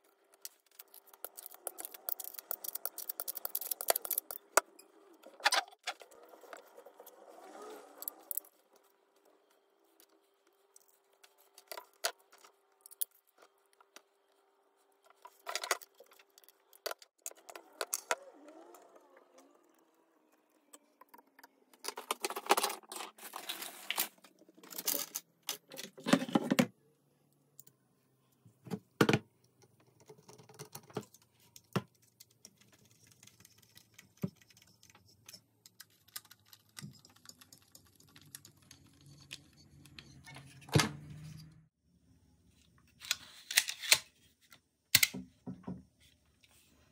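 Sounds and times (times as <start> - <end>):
metal parts clicking and clinking: 0.4 - 5.7, 23.9 - 26.0
small metal parts clattering: 0.4 - 5.7, 21.8 - 26.3.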